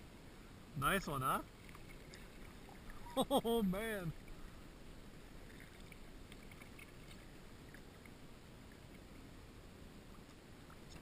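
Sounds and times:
faint steady hiss: 0.0s - 11.0s
water lapping against hull: 1.4s - 11.0s.

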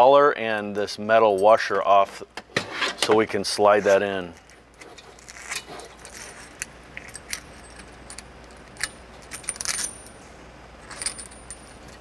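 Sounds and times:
metal clinks and rattles: 4.8s - 10.2s, 10.8s - 12.0s.

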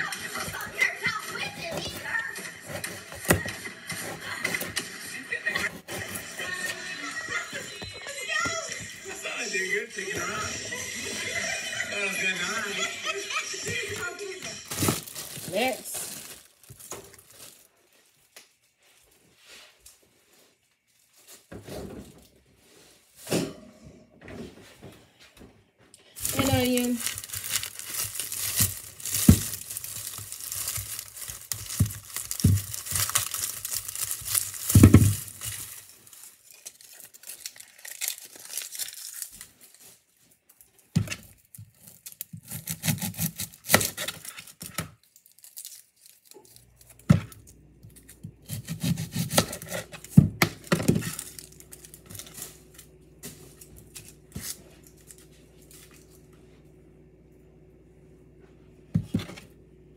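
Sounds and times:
packaging crinkling and tearing: 14.5s - 18.6s, 26.2s - 56.2s.

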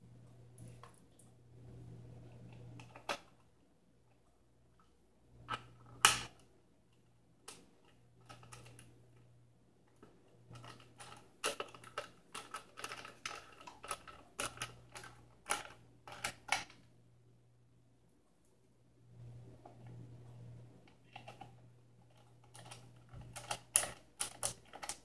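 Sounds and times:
plastic parts clicking and scraping: 2.4s - 3.5s, 5.4s - 9.3s, 9.9s - 16.9s, 20.8s - 25.0s.

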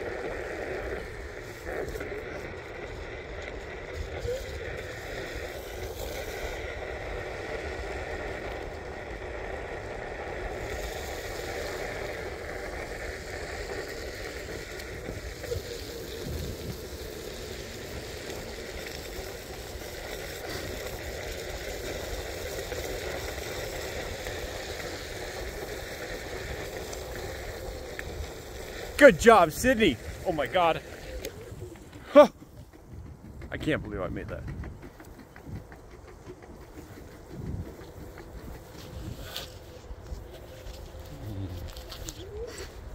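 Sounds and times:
wheels rolling on wet pavement: 0.0s - 42.9s
wind rushing over microphone: 10.6s - 19.1s, 26.5s - 42.9s.

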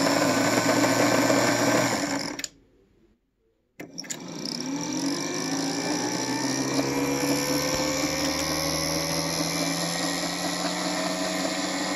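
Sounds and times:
model train motor whirring: 3.9s - 11.9s.

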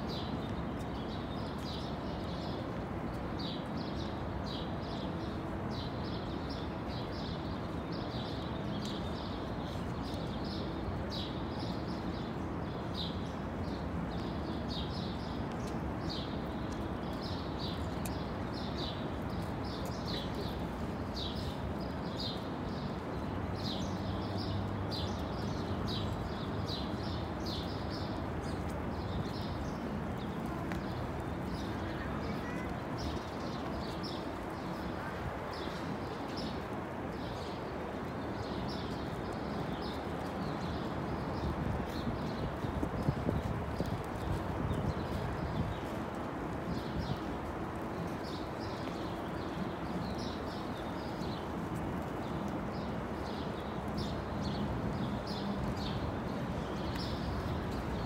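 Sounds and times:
city background hum: 0.0s - 58.0s
small birds chirping: 13.0s - 58.0s.

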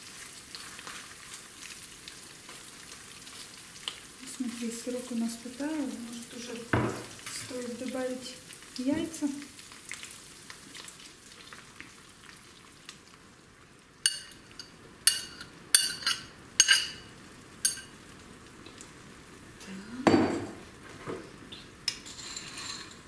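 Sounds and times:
egg sizzling in frying pan: 0.0s - 19.6s
dull knock: 6.8s - 7.1s
metal utensil clinking on pan: 14.0s - 18.0s.

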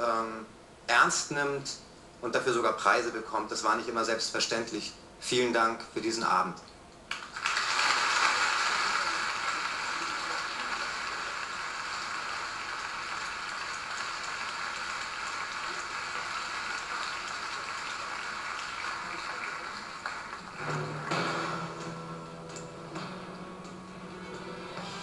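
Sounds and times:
audience applause through tv speaker: 7.1s - 22.0s.

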